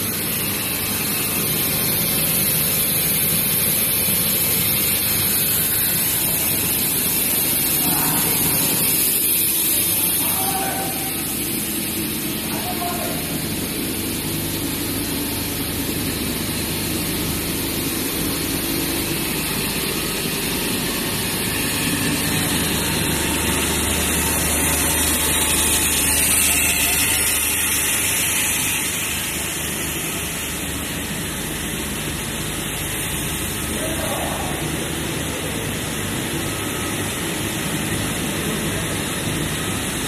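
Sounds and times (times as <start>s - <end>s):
machinery low hum: 0.0s - 40.0s.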